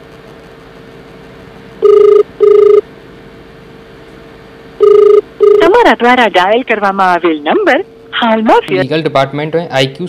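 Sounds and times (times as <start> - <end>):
faint steady hum: 0.0 - 10.0
telephone ring-back beeps: 1.8 - 2.8, 4.8 - 5.8.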